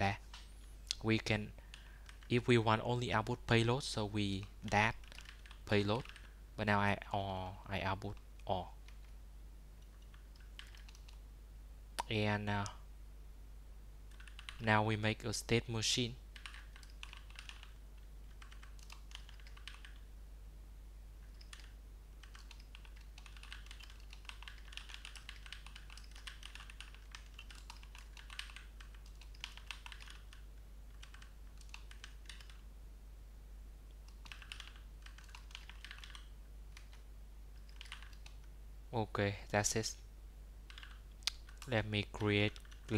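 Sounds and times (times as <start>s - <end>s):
faint low hum: 0.0s - 42.9s
computer keyboard typing: 1.7s - 2.4s, 4.4s - 6.4s, 9.9s - 11.2s, 14.1s - 14.7s, 16.3s - 20.0s, 21.2s - 32.6s, 34.0s - 37.0s, 37.6s - 38.5s, 40.7s - 42.9s.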